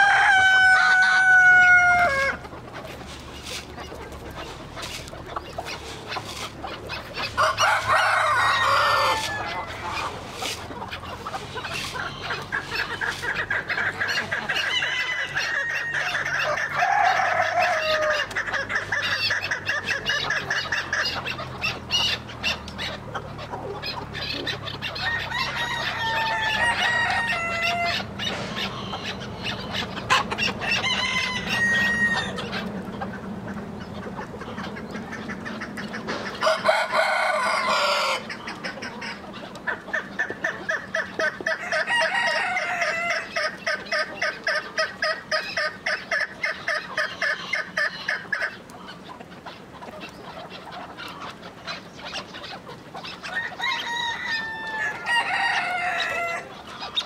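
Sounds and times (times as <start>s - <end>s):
rooster crowing: 0.0s - 2.4s, 7.4s - 10.1s, 14.6s - 18.3s, 25.0s - 28.1s, 30.1s - 32.4s, 36.4s - 38.3s, 41.6s - 43.4s, 53.3s - 56.5s
chickens clucking: 0.0s - 57.0s.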